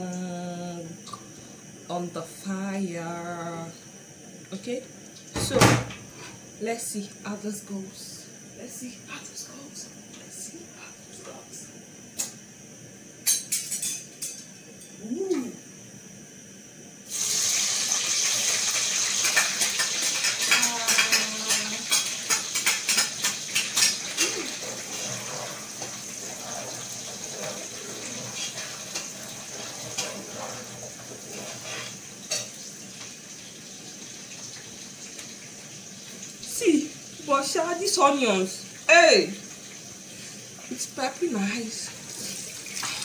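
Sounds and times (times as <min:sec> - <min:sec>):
onions sizzling in hot oil: 0:17.0 - 0:43.0.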